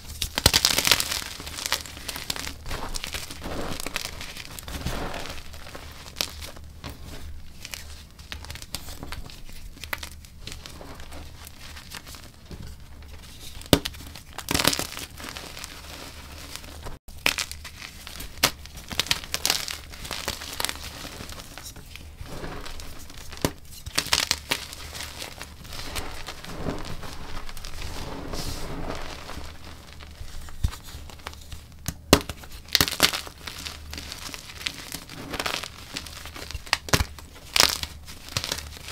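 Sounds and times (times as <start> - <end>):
chalk crunching by hand: 0.0 - 6.6, 18.9 - 31.6, 32.7 - 38.9.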